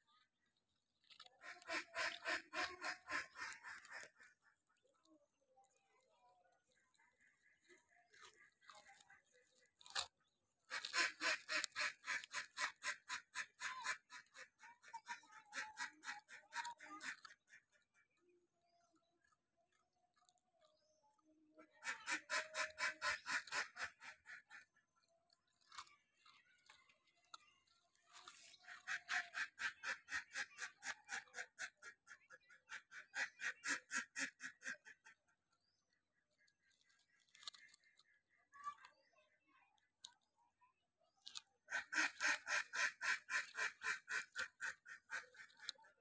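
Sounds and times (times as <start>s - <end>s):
puppies crunching biscuits: 0.0s - 32.3s, 34.1s - 46.0s.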